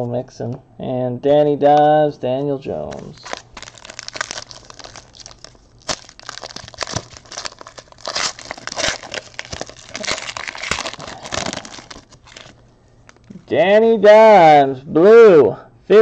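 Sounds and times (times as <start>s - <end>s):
plastic bag crinkling: 2.9s - 13.3s.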